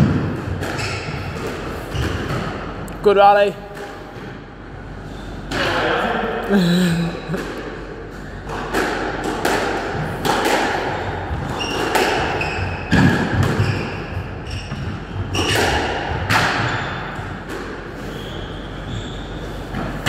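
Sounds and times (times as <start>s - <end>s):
squash ball cracks off rackets and walls: 8.4s - 17.8s
shoe squeaks on wooden floor: 11.5s - 15.6s, 18.0s - 19.7s.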